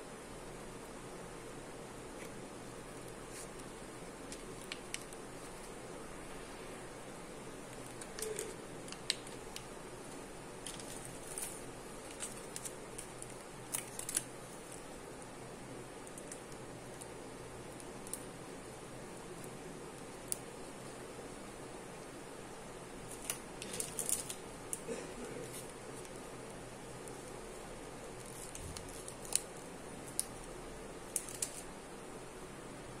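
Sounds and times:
steady background hiss: 0.0 - 33.0
plastic wrappers crinkling: 2.9 - 5.8, 7.6 - 14.9, 23.0 - 27.4, 28.1 - 31.7.

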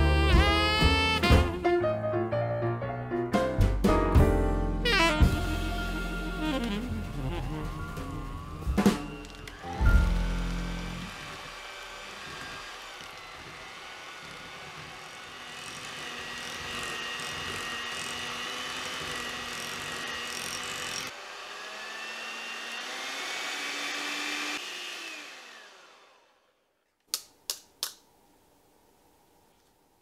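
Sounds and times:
electric hand mixer whirring: 5.2 - 26.7.

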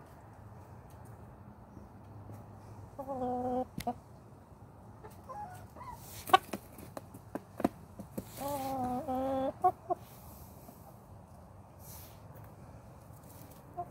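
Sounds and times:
hens clucking: 2.9 - 4.1, 4.9 - 11.4, 13.1 - 13.9.

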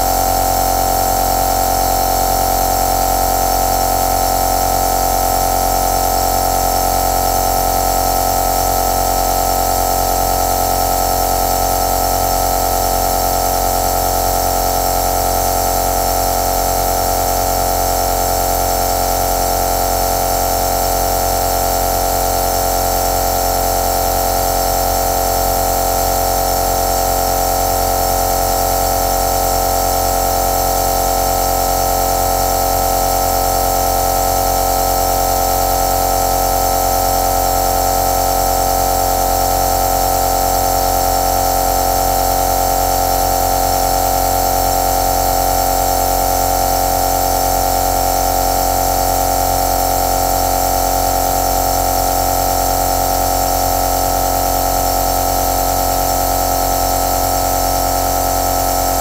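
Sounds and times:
compressor nebulizer humming: 57.2 - 59.0.

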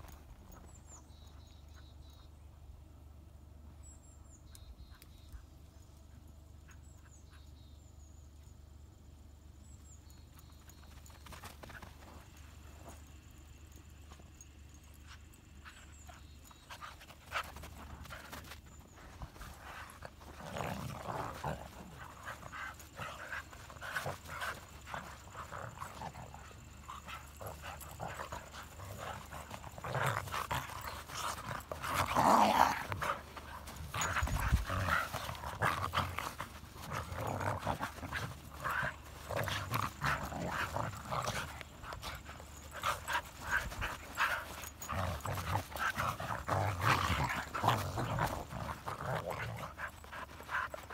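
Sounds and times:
dogs growling and panting: 15.0 - 50.9.

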